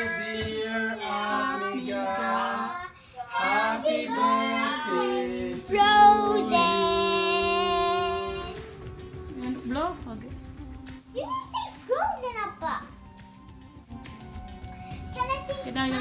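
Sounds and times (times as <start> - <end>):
child singing: 0.0 - 8.8.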